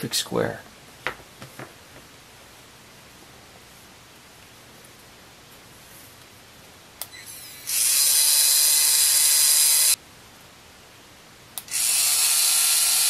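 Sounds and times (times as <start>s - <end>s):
pen motor whirring: 7.3s - 10.0s, 11.6s - 13.0s.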